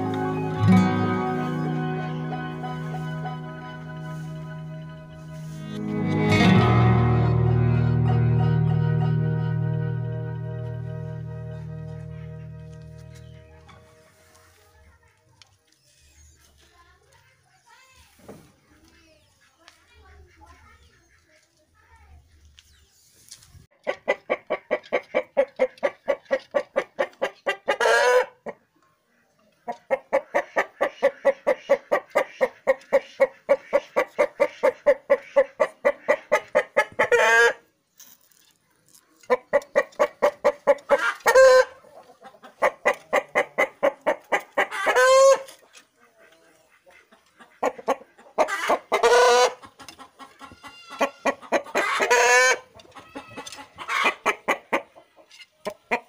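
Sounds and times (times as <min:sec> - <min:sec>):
chickens clucking: 0:00.0 - 0:56.0
chicken squawking: 0:23.8 - 0:28.6, 0:29.9 - 0:37.7, 0:39.3 - 0:55.0.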